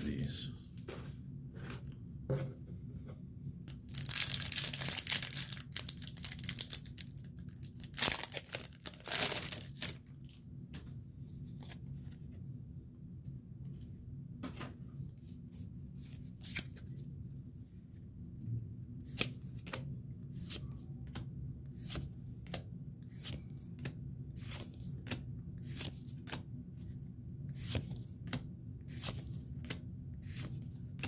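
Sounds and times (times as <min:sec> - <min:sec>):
foil wrapper crinkling: 0:03.8 - 0:10.1
foil wrapper tearing: 0:03.9 - 0:10.0.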